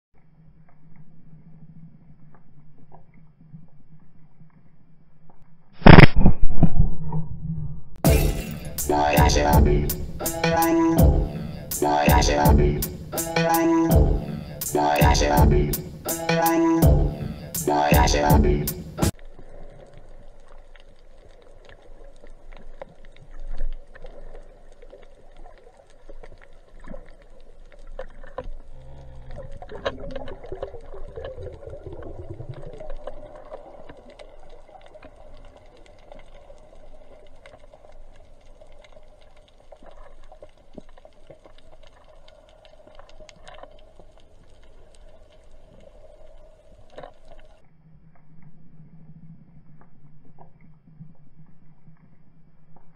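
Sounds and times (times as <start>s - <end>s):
faint clicks and crackle: 0.2s - 7.2s, 19.2s - 52.9s
underwater hum: 7.0s - 52.9s
low underwater rumble: 18.4s - 52.9s.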